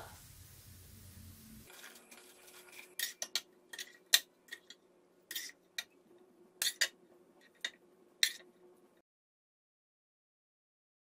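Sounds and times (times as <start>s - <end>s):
metal tongs clinking on pans: 1.7s - 5.9s, 6.6s - 8.5s.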